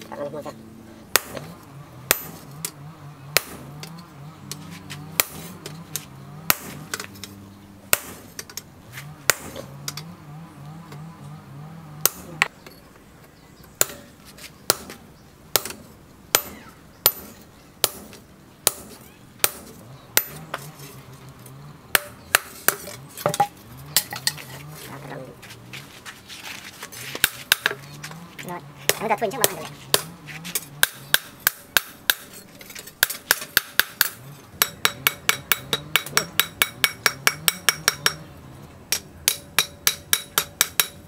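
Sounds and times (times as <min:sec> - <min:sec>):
hammer striking steel on anvil: 0:02.1 - 0:02.5, 0:05.2 - 0:05.5, 0:12.0 - 0:12.3, 0:13.8 - 0:14.1, 0:15.5 - 0:20.7, 0:21.9 - 0:24.3, 0:27.2 - 0:27.8, 0:33.0 - 0:38.3, 0:38.9 - 0:41.0.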